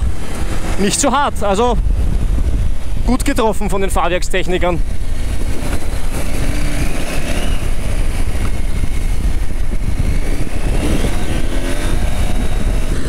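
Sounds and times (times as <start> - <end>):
wind buffeting microphone: 0.0 - 13.0
motorcycle engine running: 4.8 - 13.0.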